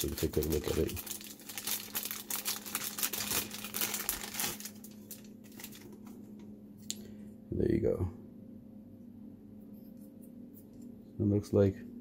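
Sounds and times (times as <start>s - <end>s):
plastic bag crinkling: 0.0s - 6.2s.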